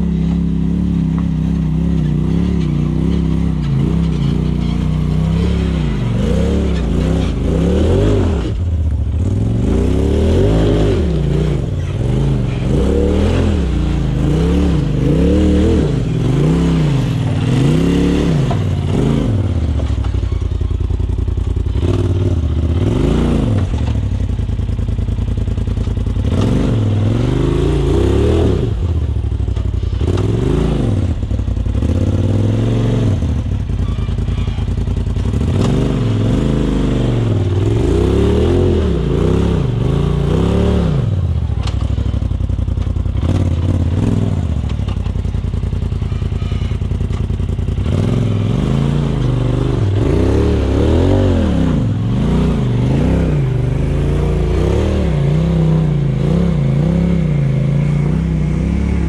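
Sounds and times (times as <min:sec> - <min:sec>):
off-road vehicle engine revving: 0:00.0 - 0:59.0.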